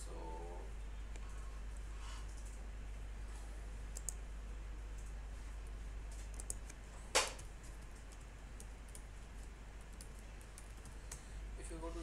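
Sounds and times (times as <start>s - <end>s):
steady low hum: 0.0s - 12.0s
mouse and keyboard clicks: 6.2s - 7.5s.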